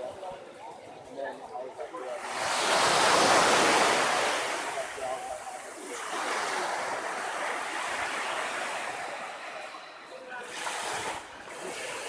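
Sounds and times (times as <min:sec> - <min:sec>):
faint voices: 0:00.0 - 0:12.0
surf washing onto beach: 0:02.2 - 0:12.0.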